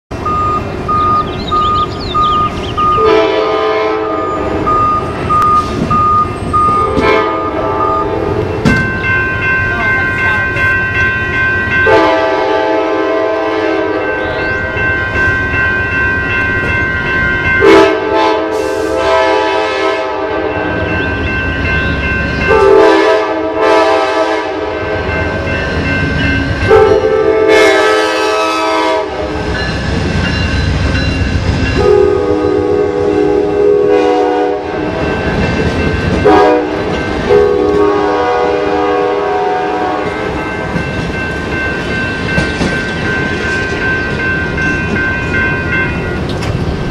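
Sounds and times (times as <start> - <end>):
train rumble and rail clatter: 0.1 - 46.9
locomotive horn blasts: 3.0 - 5.5, 6.7 - 8.6, 11.8 - 14.8, 17.6 - 21.0, 22.5 - 25.4, 26.7 - 29.5, 31.8 - 35.0, 36.2 - 40.4.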